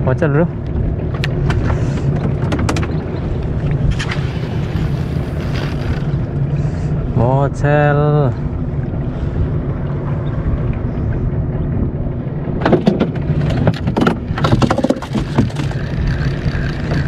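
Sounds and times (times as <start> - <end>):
boat engine running: 0.0 - 17.0
water noise: 0.0 - 17.0
wind: 0.0 - 17.0
sharp knocks and splashes: 1.0 - 4.8, 12.5 - 17.0.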